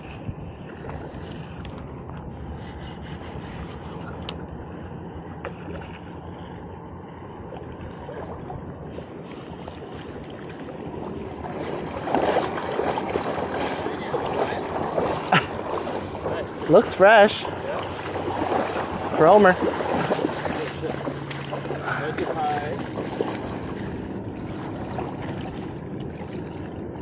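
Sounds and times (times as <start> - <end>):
shallow river water: 0.0 - 27.0
wind rushing: 11.0 - 21.2.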